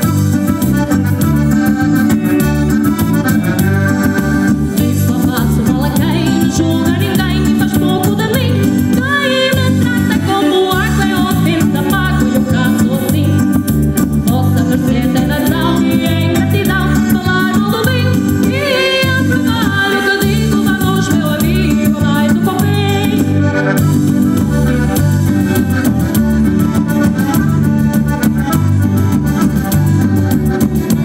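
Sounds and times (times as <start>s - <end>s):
electric guitar: 0.0s - 31.0s
electronic keyboard: 0.0s - 31.0s
woman singing: 4.7s - 13.6s, 14.2s - 23.4s.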